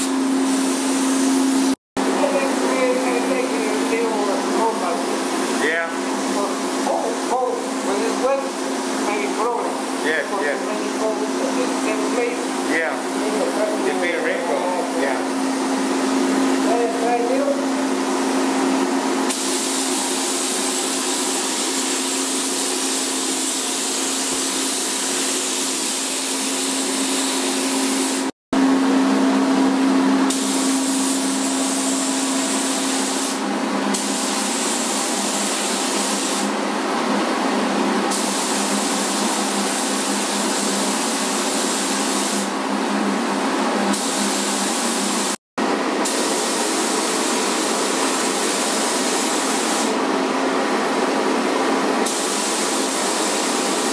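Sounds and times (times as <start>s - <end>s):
paint spray gun hissing: 0.0s - 15.0s, 19.2s - 28.3s, 30.3s - 36.6s, 38.1s - 42.5s, 43.9s - 45.4s, 46.0s - 50.0s, 51.9s - 53.9s.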